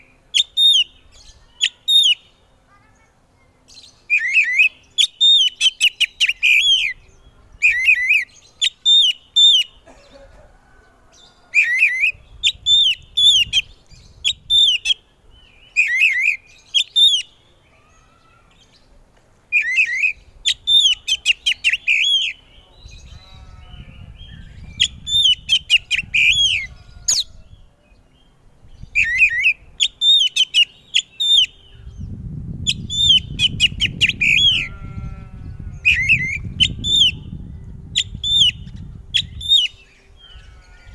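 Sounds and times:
bird singing whistled notes: 0.0 - 2.3, 3.8 - 9.8, 11.6 - 18.1, 19.5 - 34.7, 35.8 - 40.5.

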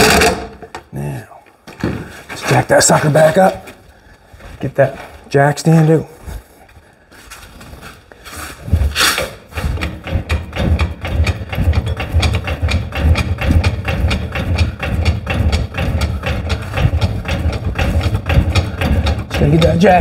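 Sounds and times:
floor jack pumping clicks: 0.0 - 0.9, 9.0 - 20.0.

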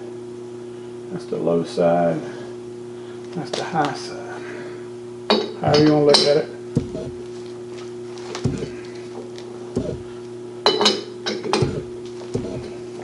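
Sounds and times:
steady hum: 0.0 - 13.0.

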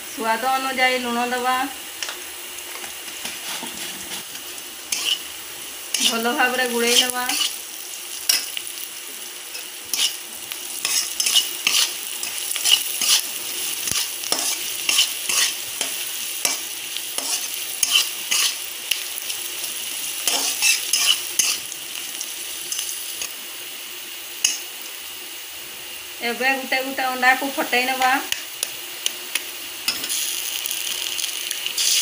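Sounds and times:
onions sizzling in hot oil: 0.0 - 32.0
utensil scraping and knocking pan: 4.9 - 5.2, 10.9 - 11.9.

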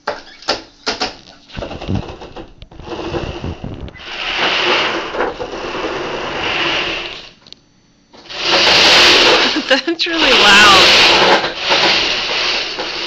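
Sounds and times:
robot motors whirring: 8.2 - 13.0.

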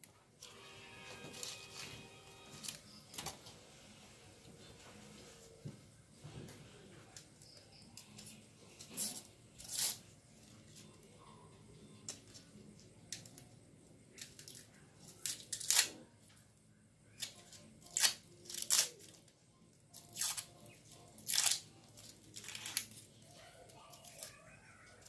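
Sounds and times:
onion skin crackling and tearing: 7.4 - 10.1, 14.2 - 16.1, 17.1 - 19.3, 19.9 - 23.2, 23.9 - 24.4.

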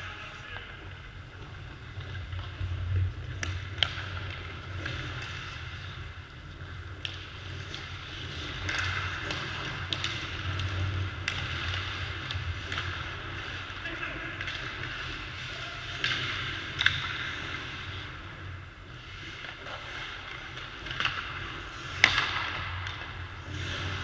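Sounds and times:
hockey sticks and pucks clacking: 0.0 - 24.0
skates scraping ice: 0.0 - 24.0
low rumble: 1.1 - 6.7.

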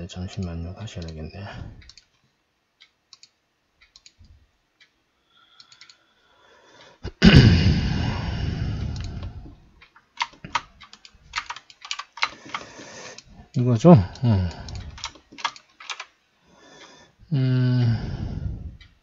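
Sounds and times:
mouse clicks: 3.1 - 4.2, 5.6 - 6.0, 8.8 - 9.3
keyboard keystrokes: 10.2 - 12.7, 14.5 - 16.1.

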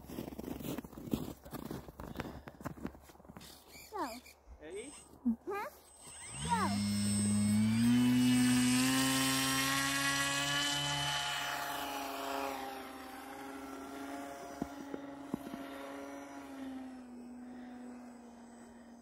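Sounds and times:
high propeller whine: 5.8 - 19.0.

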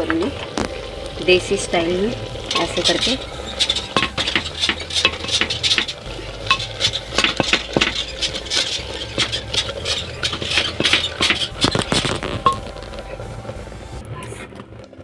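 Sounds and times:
wood knocking on clay pot: 2.5 - 13.0.

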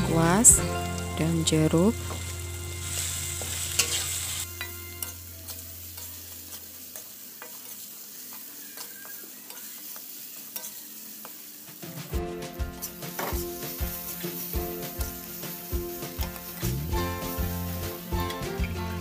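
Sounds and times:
paste sizzling in a wok: 0.0 - 19.0
metal spoon scraping a wok: 2.8 - 11.6.

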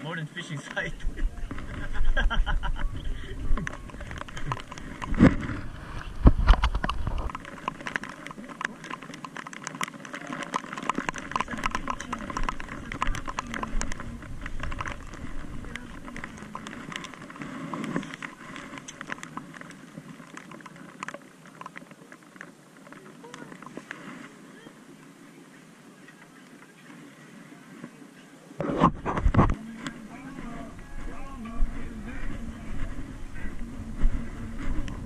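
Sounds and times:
raindrops pattering: 0.4 - 27.2.

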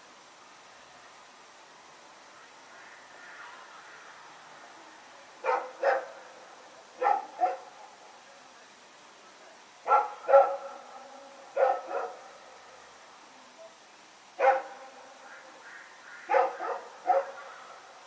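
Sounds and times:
dog barking in double barks: 5.4 - 6.2, 7.0 - 7.8, 9.9 - 10.9, 11.5 - 12.3, 14.4 - 15.0, 16.2 - 17.7.

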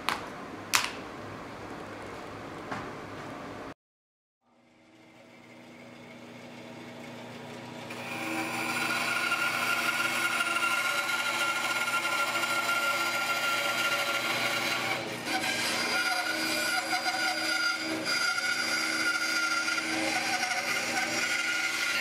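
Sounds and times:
bandsaw cutting wood: 5.1 - 22.0.

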